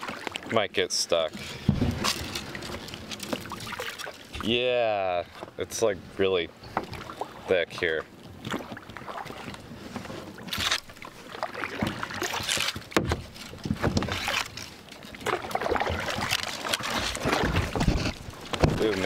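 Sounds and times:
paddle strokes splashing: 0.0 - 4.6, 5.2 - 19.0
branches knocking against paddle: 1.4 - 4.5, 11.7 - 19.0.

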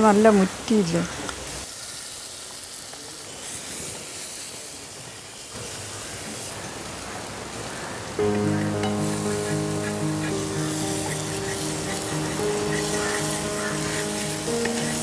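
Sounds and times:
oil sizzling in a pan: 0.0 - 15.0
wooden spatula scraping a pan: 9.8 - 15.0.

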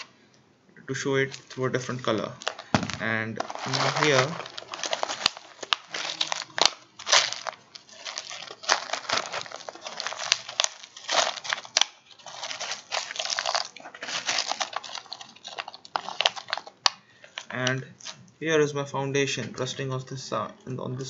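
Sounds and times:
fill material crinkling and crunching: 1.0 - 18.2.

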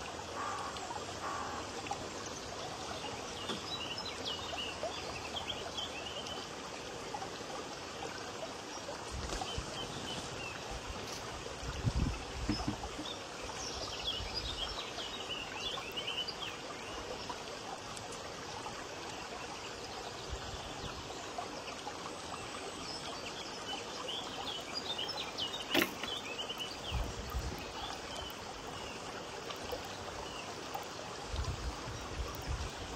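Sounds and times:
small birds chirping: 22.4 - 32.9
sharp click: 25.7 - 26.2.

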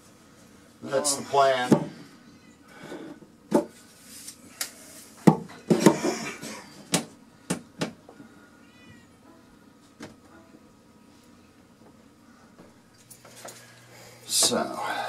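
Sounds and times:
faint wavering high call: 2.2 - 2.6.

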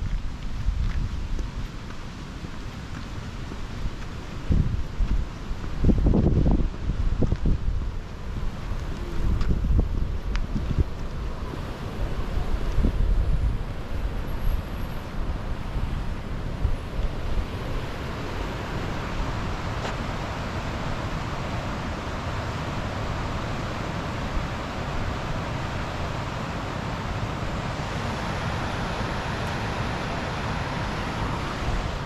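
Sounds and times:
wind gusting on microphone: 0.0 - 32.0
river rushing: 6.8 - 32.0.

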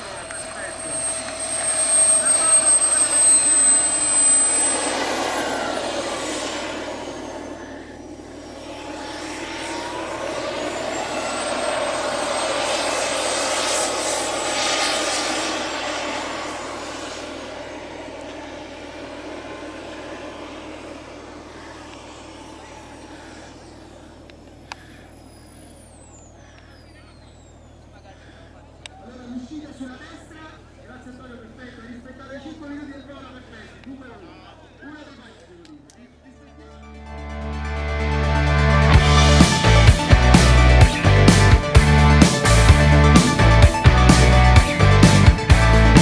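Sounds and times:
model jet turbine whine: 0.0 - 36.3, 37.2 - 46.0.

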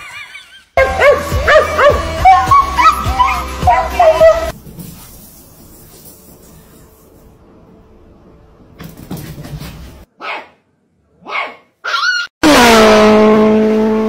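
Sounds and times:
puppy barking: 0.8 - 4.5, 10.2 - 10.6, 11.2 - 12.2.

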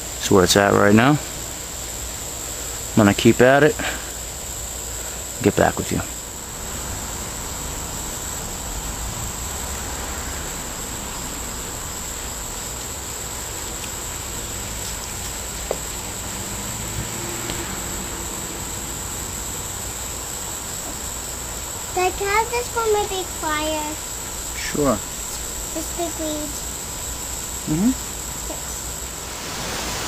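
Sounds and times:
crickets chirping: 0.0 - 30.0.

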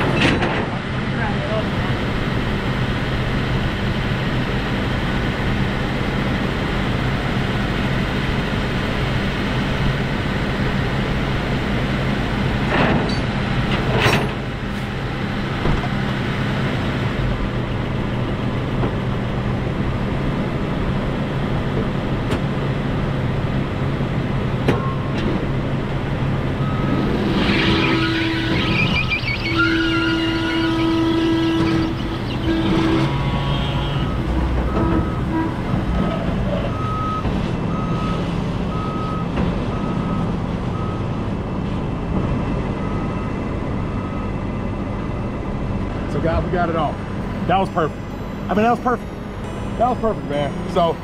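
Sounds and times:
diesel truck engine running: 0.0 - 51.0
pitched tone: 26.6 - 35.6, 47.2 - 51.0.

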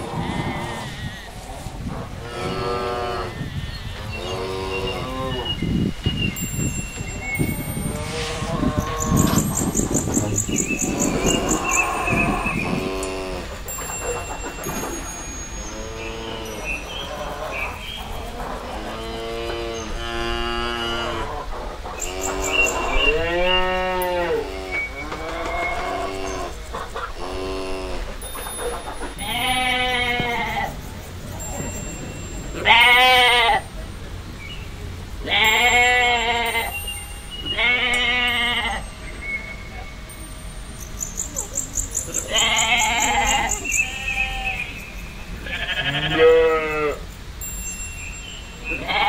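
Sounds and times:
cows mooing: 0.0 - 5.6, 7.4 - 30.7
sheep bleating: 45.4 - 47.0.

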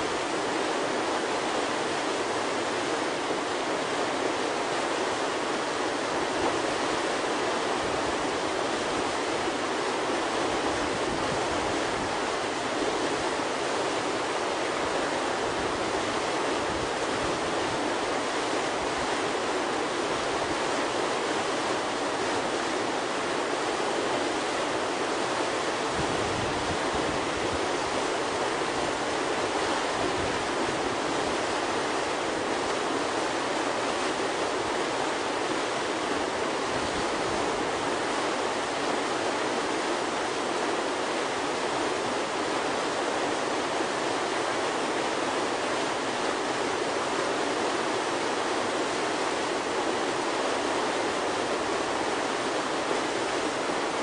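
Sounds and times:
whitewater rushing: 0.0 - 54.0.

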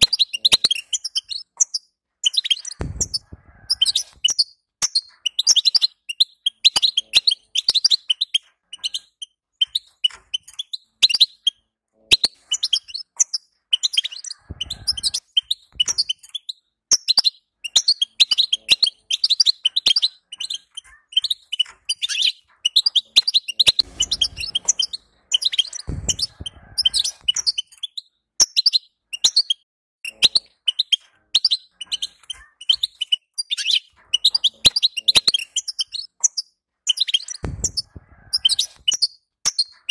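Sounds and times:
bird twittering: 0.0 - 39.9
low dull thumps: 2.8 - 3.5, 23.8 - 27.4, 37.4 - 38.1.

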